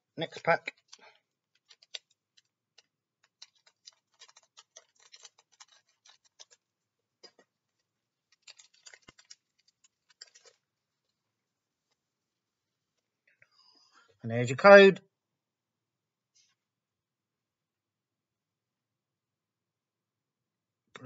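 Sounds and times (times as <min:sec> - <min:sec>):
foil wrapper crinkling: 0:00.2 - 0:11.1.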